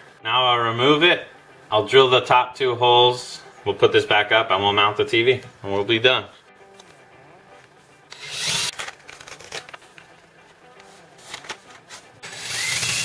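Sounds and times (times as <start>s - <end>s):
power drill boring into wall: 8.1s - 8.8s, 12.2s - 13.0s.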